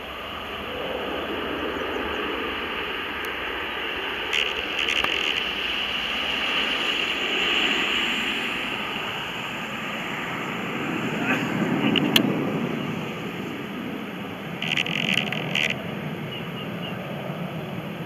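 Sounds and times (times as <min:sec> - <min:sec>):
jet engines roaring at takeoff: 0:00.0 - 0:18.0
brief clicks: 0:14.6 - 0:15.8.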